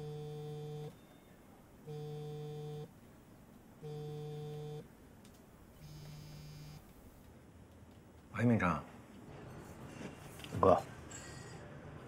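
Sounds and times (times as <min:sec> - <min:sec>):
phone buzzing on a desk: 0:00.0 - 0:01.0, 0:01.9 - 0:02.9, 0:03.8 - 0:04.8, 0:05.8 - 0:06.8.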